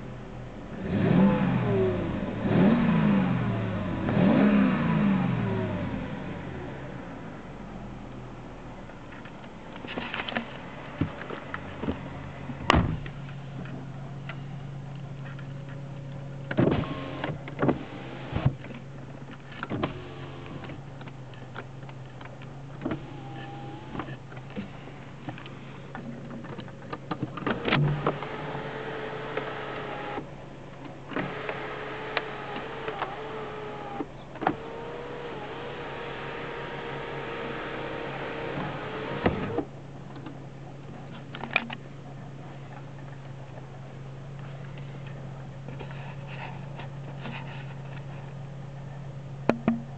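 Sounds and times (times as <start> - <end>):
car engine idling: 5.2 - 49.9
electric window motors whirring: 16.5 - 18.8, 19.5 - 20.9, 22.8 - 24.7, 27.1 - 30.3, 31.1 - 39.7.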